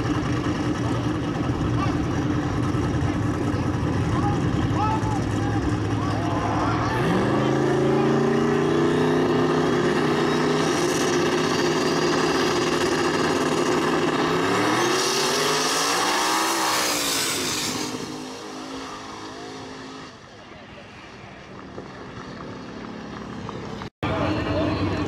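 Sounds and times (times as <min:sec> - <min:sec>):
drag racing engines revving: 0:00.0 - 0:25.0.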